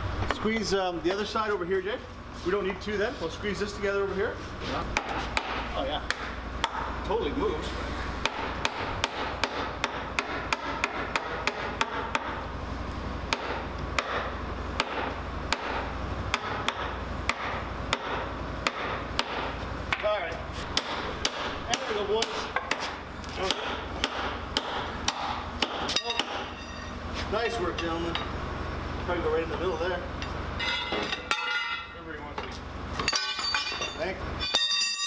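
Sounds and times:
hammer striking steel track links: 0:23.4 - 0:27.0, 0:30.2 - 0:35.0.

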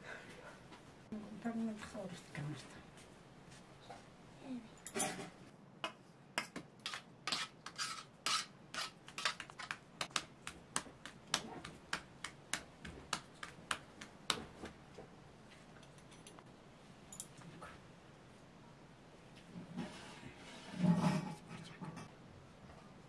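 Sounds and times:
hands slapping bread dough: 0:09.0 - 0:15.1.

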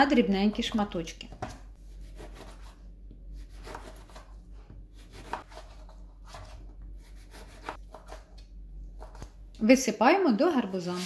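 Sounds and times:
knife slicing an orange: 0:01.9 - 0:02.8, 0:03.4 - 0:09.4.

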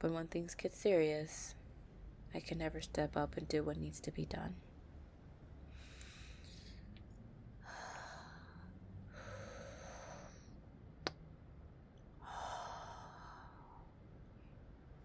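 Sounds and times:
woman breathing: 0:05.7 - 0:06.9, 0:07.6 - 0:10.7, 0:12.2 - 0:14.6.

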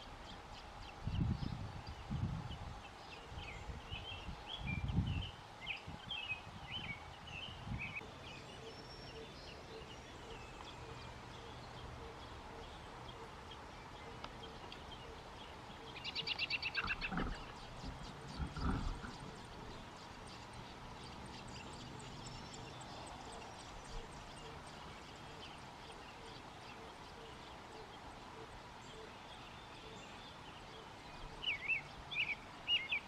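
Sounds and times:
nestlings begging chirps: 0:12.7 - 0:26.5.

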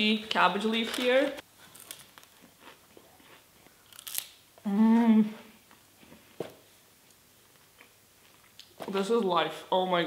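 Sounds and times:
chewing crunch: 0:01.7 - 0:04.3
person humming mmm: 0:04.6 - 0:05.6.

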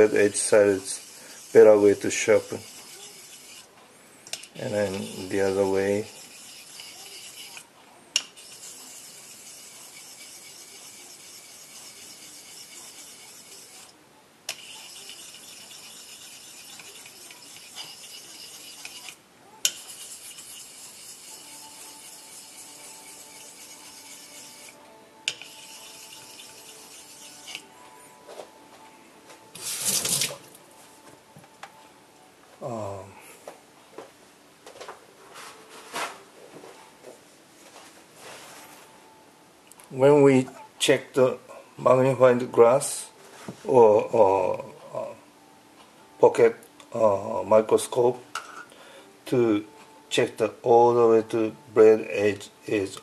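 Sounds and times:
razor rubbing on whetstone: 0:00.0 - 0:03.7, 0:04.6 - 0:07.7, 0:08.3 - 0:27.7, 0:29.6 - 0:30.5
scrape or knock: 0:29.6 - 0:30.4.

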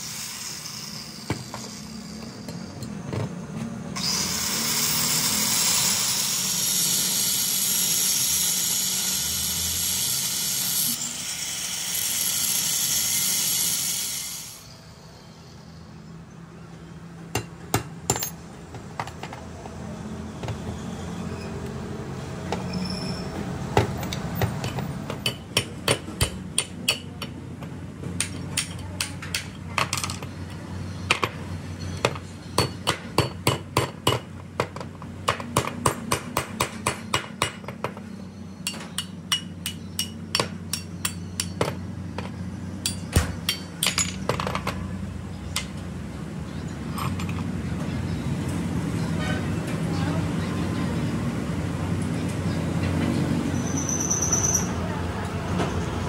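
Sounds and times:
angle grinder cutting steel: 0:00.0 - 0:02.5, 0:04.0 - 0:14.8.

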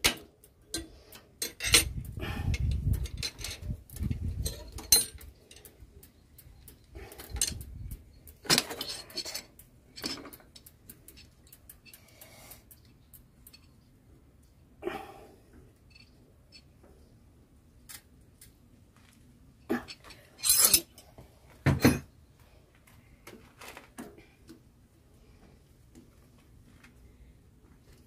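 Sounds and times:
spanner clinking on metal: 0:00.0 - 0:13.8, 0:19.8 - 0:21.0.

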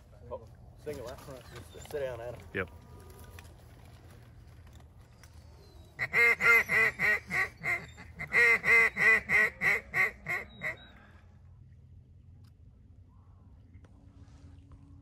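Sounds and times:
duck call quacks: 0:06.0 - 0:10.8.

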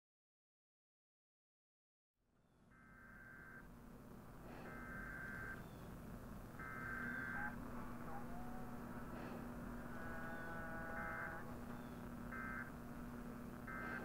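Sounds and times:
low hum and hiss: 0:02.4 - 0:14.0
long electronic beeps: 0:02.8 - 0:03.7, 0:04.5 - 0:14.0
faint gliding whistles: 0:06.6 - 0:12.7.

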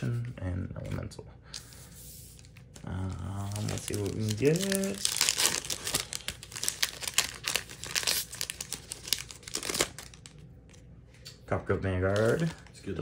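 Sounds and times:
foil wrapper tearing and crinkling: 0:02.9 - 0:10.4, 0:12.1 - 0:12.8.

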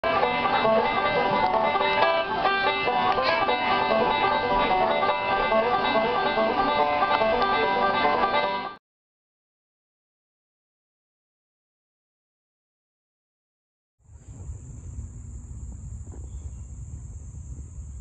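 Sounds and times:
plucked string music: 0:00.0 - 0:08.8.

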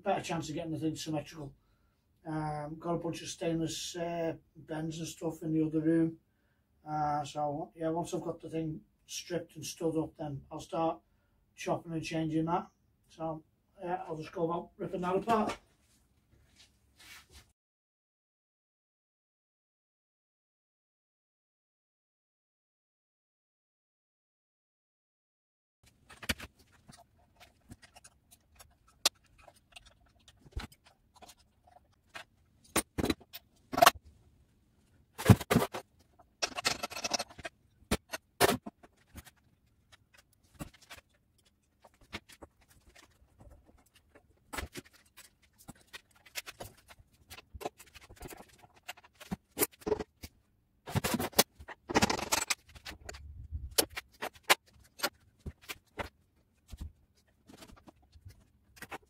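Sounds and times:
rattling and scraping: 0:35.2 - 0:50.2
tools and parts clicking: 0:36.4 - 0:39.2, 0:50.9 - 0:53.2.

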